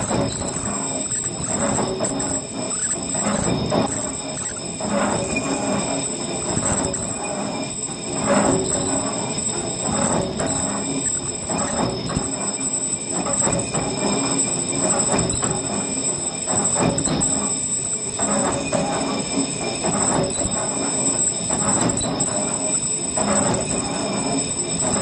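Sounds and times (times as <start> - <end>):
metal cutting tool scraping drum: 0.0 - 12.3
high machine whine: 0.0 - 25.0.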